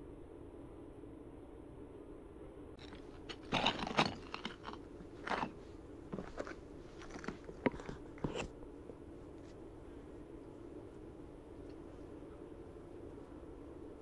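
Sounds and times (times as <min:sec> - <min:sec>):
footsteps crunching on rock rubble: 0:02.8 - 0:08.5.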